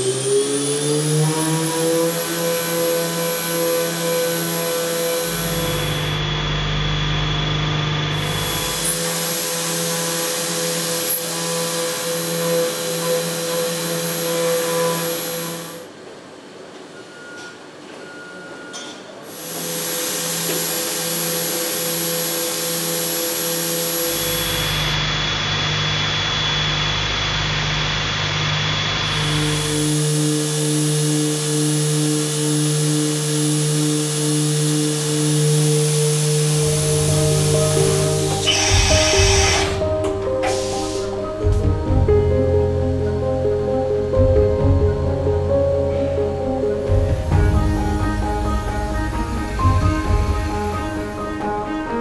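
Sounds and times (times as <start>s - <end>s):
milling spindle whine: 0.0s - 15.9s, 19.3s - 41.2s
pulsing machine hum: 0.0s - 16.0s, 19.3s - 52.0s
hiss of metal cutting: 36.4s - 39.8s, 40.4s - 41.4s.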